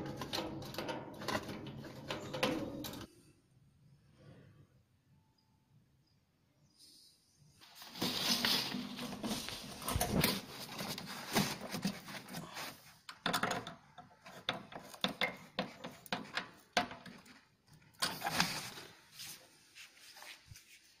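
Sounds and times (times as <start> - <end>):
plastic hose rustling and clicking: 0.0 - 3.1, 7.6 - 19.4.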